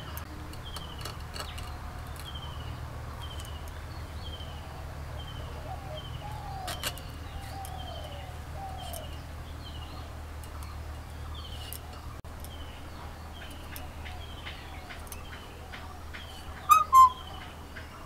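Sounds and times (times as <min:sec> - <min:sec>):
bird chirping: 0:00.0 - 0:18.0
low falling bird notes: 0:05.4 - 0:17.8.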